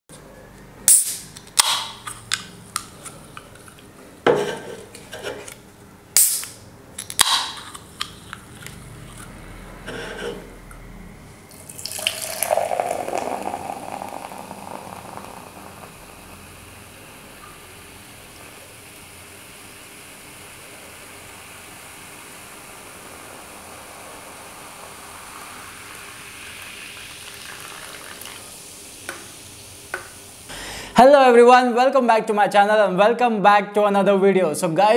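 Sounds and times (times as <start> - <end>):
soda can tab clicks: 0.9 - 3.7, 6.2 - 8.8
fizzy drink pouring into glass: 11.5 - 16.9, 20.7 - 30.4.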